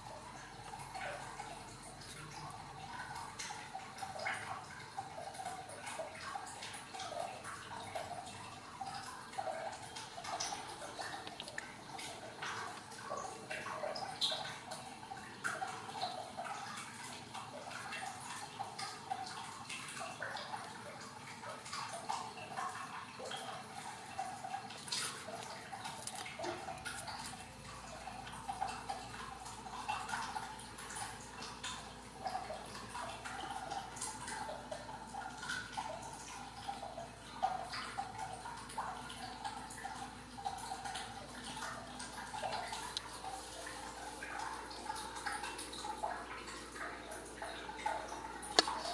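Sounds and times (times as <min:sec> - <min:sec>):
kittens suckling wet smacking: 0:10.6 - 0:13.0, 0:23.6 - 0:29.4, 0:46.6 - 0:48.9.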